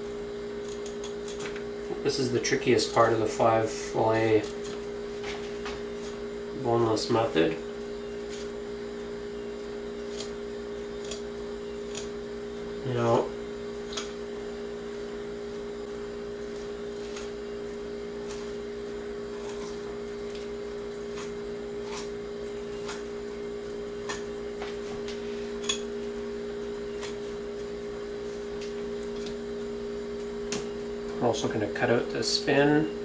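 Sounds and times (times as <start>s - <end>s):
electrical hum: 0.0s - 33.0s
knife slicing fish: 19.2s - 23.1s.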